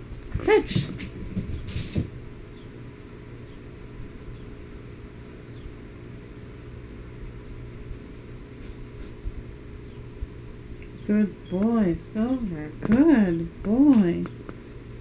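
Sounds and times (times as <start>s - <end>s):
steady low hum: 0.0s - 15.0s
cat paws tapping on hardwood floor: 0.4s - 2.2s
short rustle: 0.7s - 2.1s.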